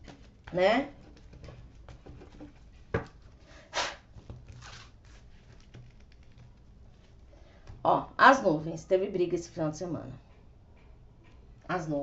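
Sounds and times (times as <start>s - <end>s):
cards swishing and ticking: 4.2s - 7.2s.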